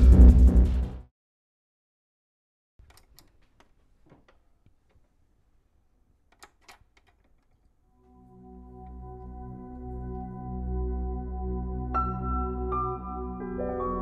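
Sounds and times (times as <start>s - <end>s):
faint sharp clicks and knocks: 2.8s - 5.2s
soft ambient music tones: 7.9s - 14.0s.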